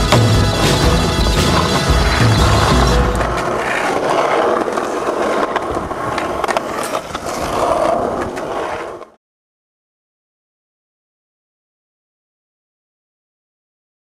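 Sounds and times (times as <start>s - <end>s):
skateboard wheels rolling on pavement: 0.0s - 9.2s.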